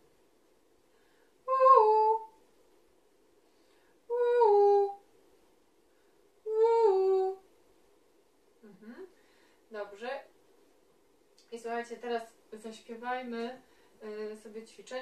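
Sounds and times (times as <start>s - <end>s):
woman singing two-note calls: 1.5s - 2.3s.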